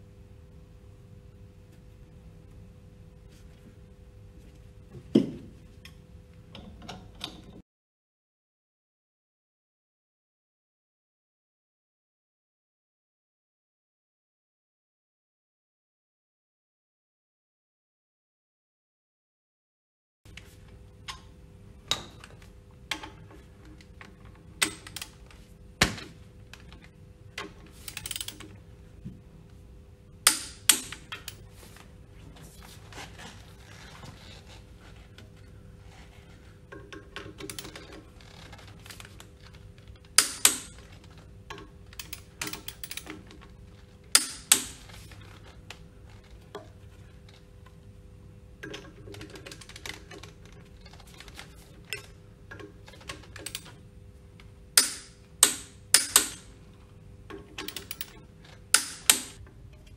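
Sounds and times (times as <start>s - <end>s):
faint steady hum: 0.0s - 7.6s, 20.3s - 59.9s.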